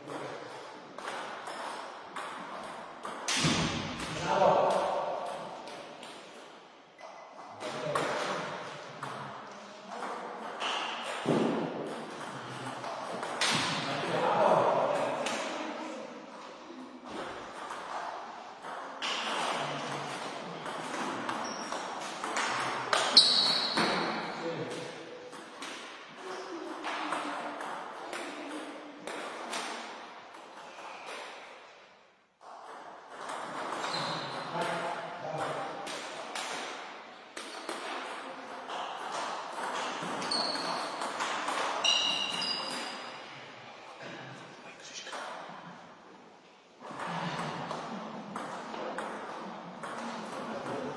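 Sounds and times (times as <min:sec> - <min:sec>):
table tennis ball hits: 0:01.0 - 0:06.4, 0:10.0 - 0:13.9, 0:17.1 - 0:26.0, 0:32.4 - 0:43.0.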